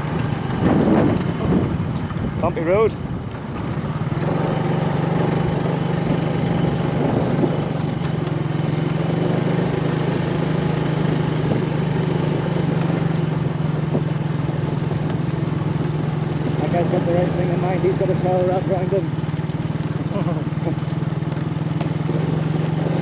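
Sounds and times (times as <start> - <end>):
small motorcycle engine droning: 0.0 - 23.0.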